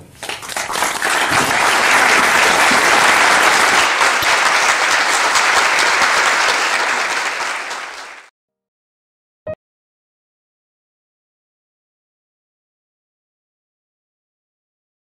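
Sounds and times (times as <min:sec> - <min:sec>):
audience applauding: 0:00.2 - 0:08.3.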